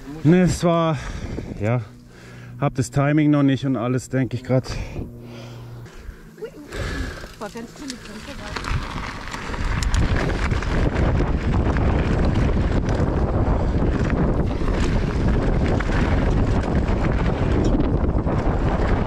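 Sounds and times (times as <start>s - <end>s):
wind buffeting microphone: 0.0s - 2.6s, 4.6s - 19.0s
bike clicks and rattles: 6.7s - 19.0s.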